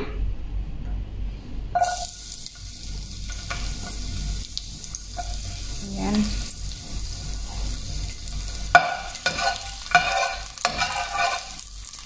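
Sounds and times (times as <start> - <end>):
garlic sizzling in hot oil: 1.8 - 12.0.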